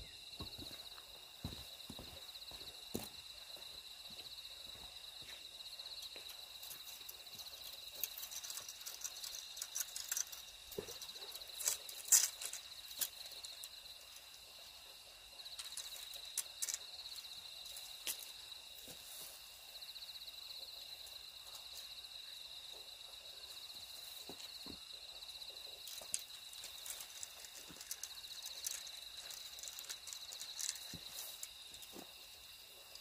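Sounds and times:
insects chirring: 0:00.0 - 0:33.0
clicks and rustles: 0:06.0 - 0:14.4, 0:15.5 - 0:18.4, 0:25.7 - 0:32.3.

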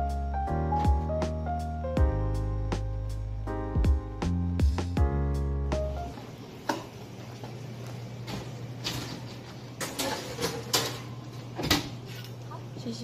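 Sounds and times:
background music: 0:00.0 - 0:06.1.

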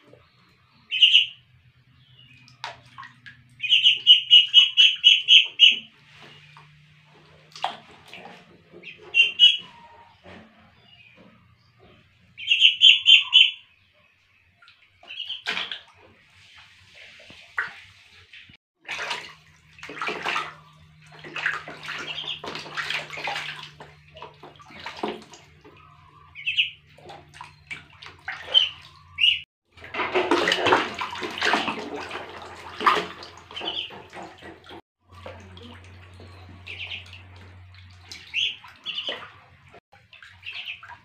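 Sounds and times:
water splashing in a plastic tub: 0:00.0 - 0:10.9, 0:14.4 - 0:41.0.

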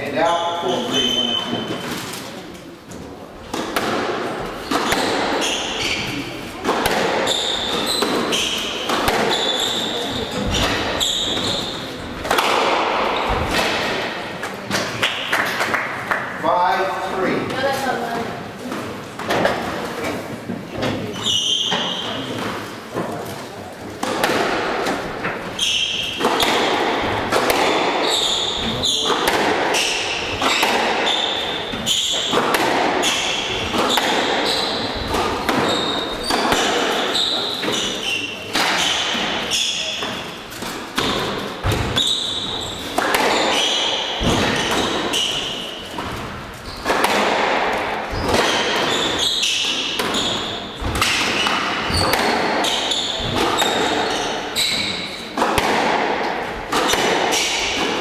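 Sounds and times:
shoes squeaking on hardwood floor: 0:00.0 - 0:02.4, 0:04.4 - 0:12.2, 0:20.0 - 0:23.3, 0:24.9 - 0:55.4
squash ball cracking off rackets: 0:03.4 - 0:15.7, 0:24.0 - 0:58.0.

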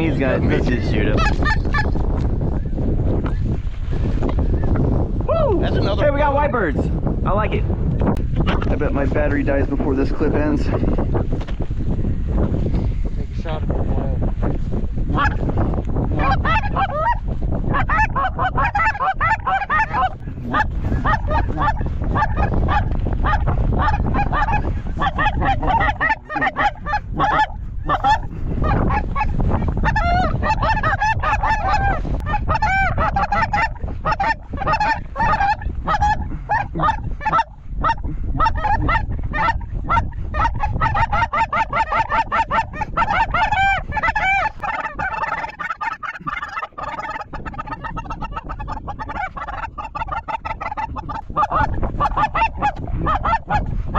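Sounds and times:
wind on microphone: 0:00.0 - 0:53.9
geese honking: 0:00.1 - 0:02.0, 0:16.2 - 0:53.7.

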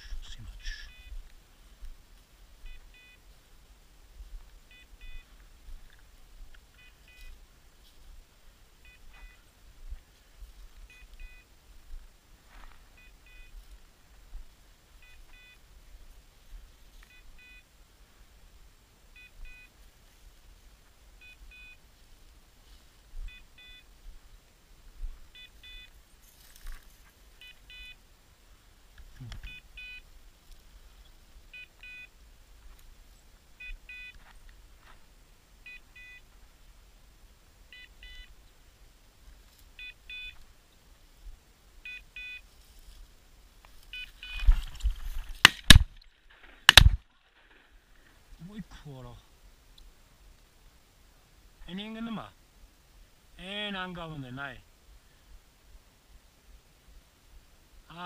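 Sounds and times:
rustling through dry grass: 0:00.0 - 0:48.6
beeper collar double beep: 0:00.7 - 0:01.2, 0:02.7 - 0:03.2, 0:08.8 - 0:09.4, 0:35.7 - 0:36.2
shotgun shot: 0:45.5 - 0:45.9, 0:46.7 - 0:47.0.

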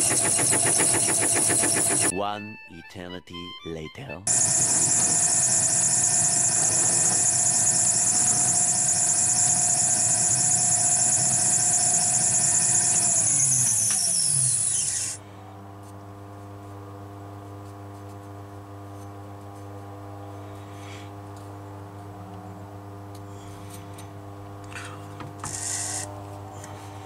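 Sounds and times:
metal lathe whining: 0:04.3 - 0:15.2
low steady hum: 0:15.2 - 0:25.3.

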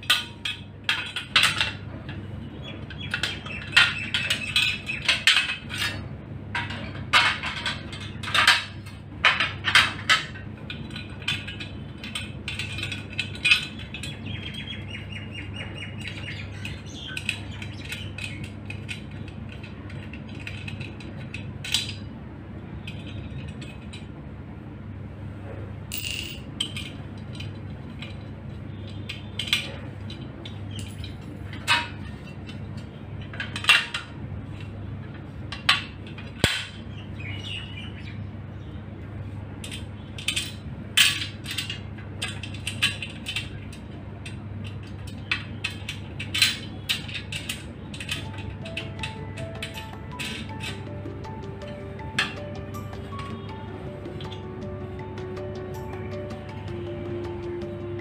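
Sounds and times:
metal brackets clicking and clinking: 0:00.0 - 0:14.8, 0:16.0 - 0:22.1, 0:25.9 - 0:36.8, 0:39.6 - 0:58.0
metal brackets knocking: 0:45.6 - 0:58.0.

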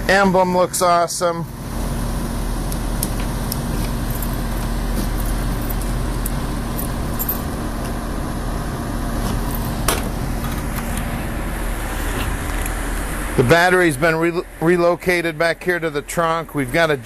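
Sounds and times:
low background hum: 0:00.0 - 0:17.0
keys jingling in a lock: 0:05.2 - 0:07.5.

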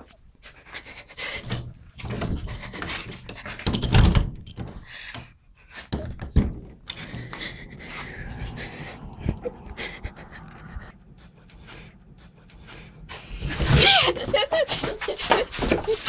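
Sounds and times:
woman panting heavily: 0:00.4 - 0:03.6, 0:06.9 - 0:16.0.

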